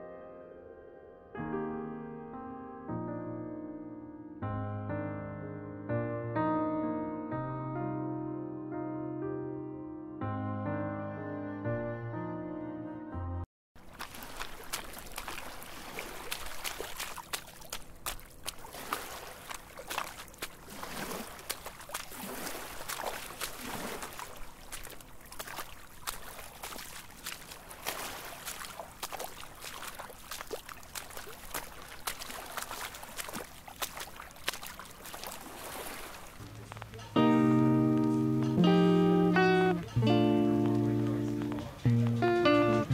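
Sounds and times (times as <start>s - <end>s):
feet splashing through water: 13.8s - 42.9s.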